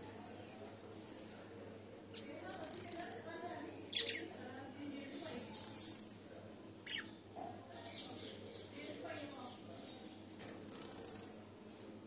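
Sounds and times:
small birds chattering and chirping: 2.0s - 3.2s, 3.8s - 11.4s.

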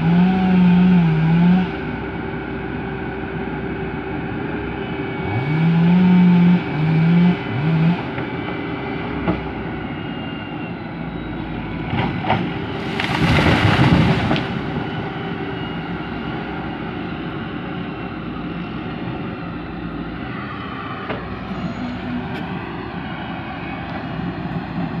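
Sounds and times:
excavator diesel engine running: 0.0s - 25.0s
tree crashing to the ground: 12.0s - 15.1s.

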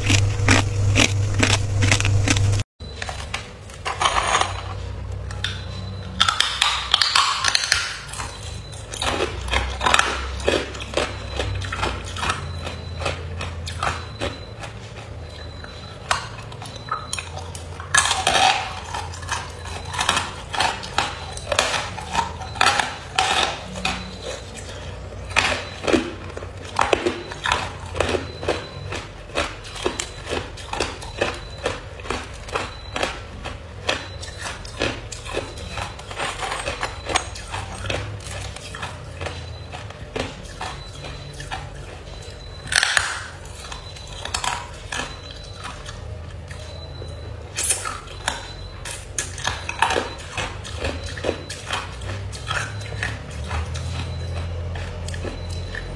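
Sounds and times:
ice crunching being chewed: 0.0s - 55.9s.

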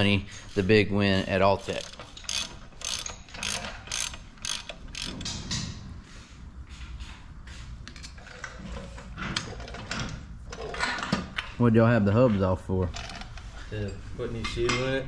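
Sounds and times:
ratchet wrench clicking: 1.7s - 5.2s
metal tools clinking: 1.7s - 5.4s, 12.9s - 15.0s.

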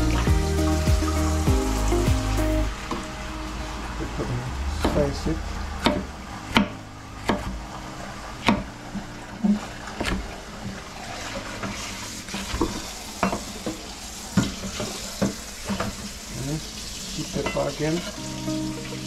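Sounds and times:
faint frying sizzle: 10.4s - 19.0s.

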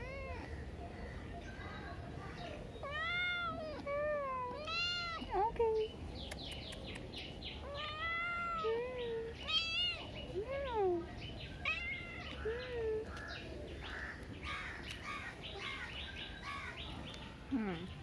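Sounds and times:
kitten meowing: 7.6s - 10.1s, 11.6s - 12.6s.

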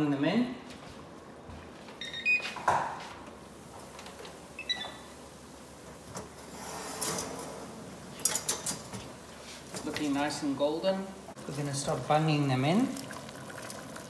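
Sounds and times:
oven door opening: 5.8s - 10.5s.

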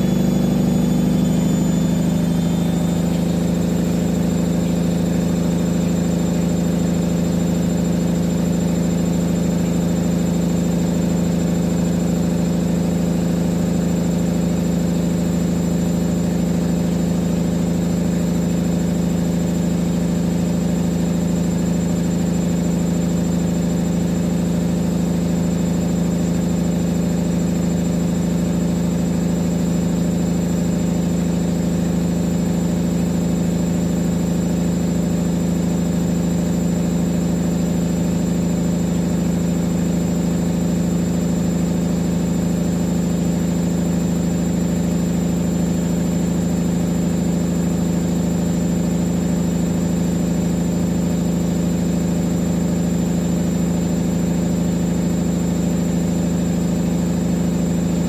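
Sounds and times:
washing machine drum spinning: 0.0s - 21.7s.

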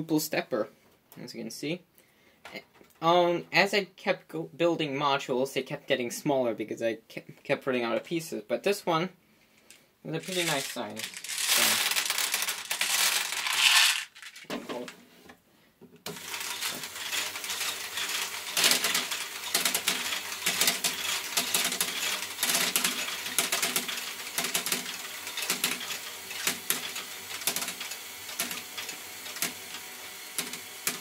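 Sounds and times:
plastic balls clattering and clicking: 10.2s - 15.0s, 16.1s - 31.0s
small electric motor humming: 16.1s - 31.0s.

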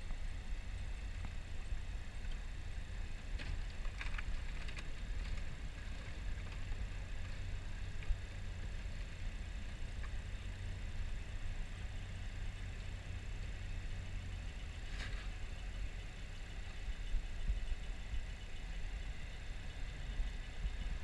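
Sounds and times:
boat engine rumble: 0.0s - 21.0s
faint crackles: 3.2s - 9.2s.

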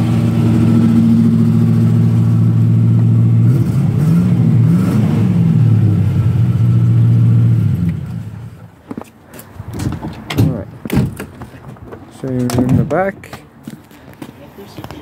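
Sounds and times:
car engine idling and revving: 0.0s - 8.8s.

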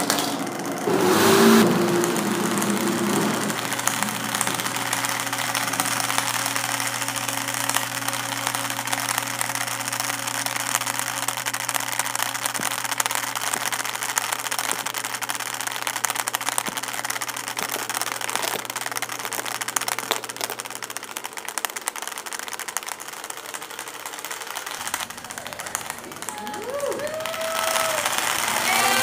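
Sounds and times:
phones toppling like dominoes: 0.0s - 29.0s
low steady hum: 0.2s - 28.7s.

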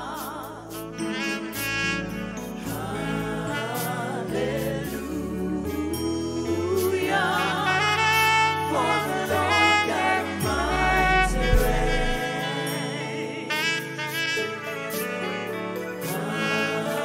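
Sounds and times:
people singing: 0.0s - 17.0s
saxophone melody: 0.6s - 4.6s, 7.3s - 17.0s
bass line: 10.4s - 12.2s.

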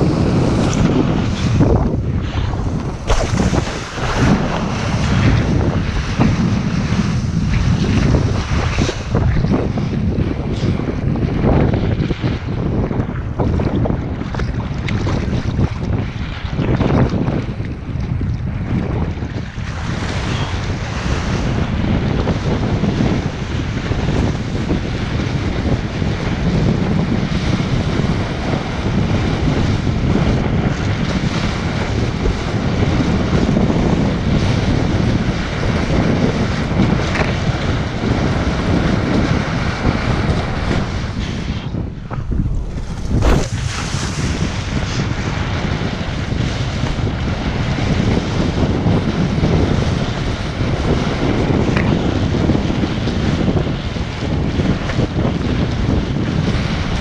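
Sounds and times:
water rushing and spraying: 0.0s - 10.1s, 36.3s - 49.3s
wind buffeting microphone: 0.0s - 57.0s.

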